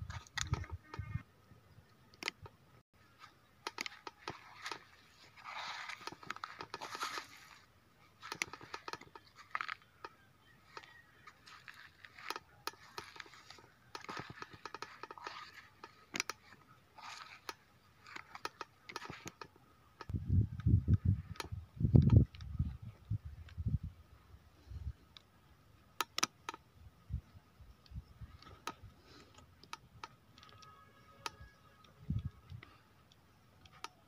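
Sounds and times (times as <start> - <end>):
footsteps on rocky ground: 3.9 - 10.0, 10.7 - 19.3.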